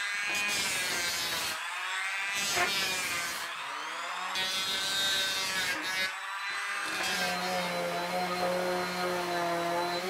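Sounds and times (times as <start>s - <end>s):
electric planer cutting wood: 0.0s - 10.0s
orbital sander humming: 4.6s - 10.0s.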